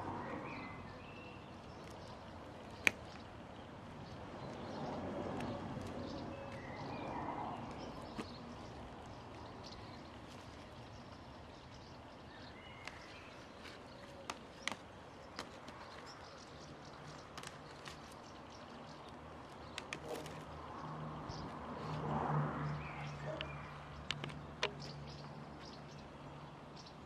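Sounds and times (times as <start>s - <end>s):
faint outdoor background: 0.0s - 27.0s
wire mesh clicking and tapping: 1.7s - 3.3s, 12.8s - 20.6s, 23.4s - 25.0s.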